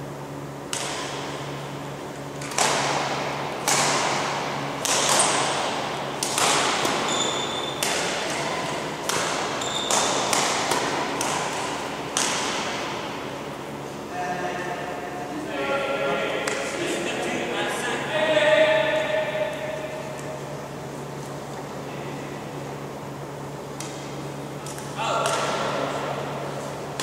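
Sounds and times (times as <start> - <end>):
badminton rackets hitting shuttlecock: 0.6 - 1.6, 2.3 - 13.6, 16.3 - 16.8, 23.7 - 26.2
shoes squeaking on court floor: 6.7 - 10.4.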